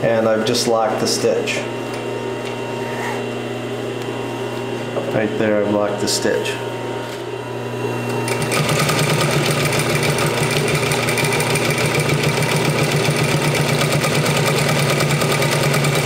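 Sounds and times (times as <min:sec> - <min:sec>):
sewing machine motor hum: 0:07.9 - 0:16.0.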